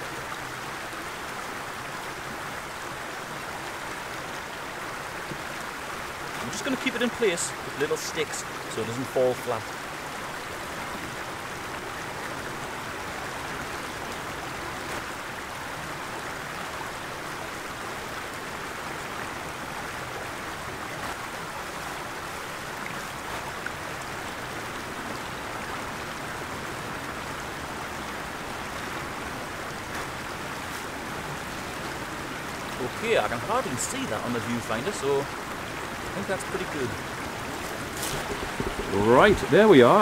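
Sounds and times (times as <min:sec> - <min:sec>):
stream water rushing: 0:00.0 - 0:40.0
twigs and leaves clicking: 0:37.4 - 0:39.4.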